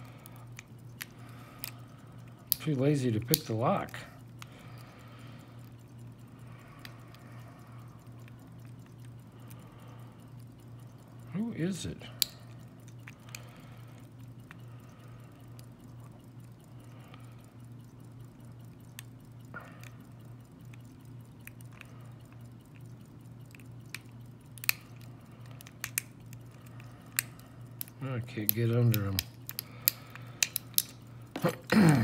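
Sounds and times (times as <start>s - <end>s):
steady low hum: 0.0s - 32.0s
lock pick clicking in padlock: 23.5s - 31.7s.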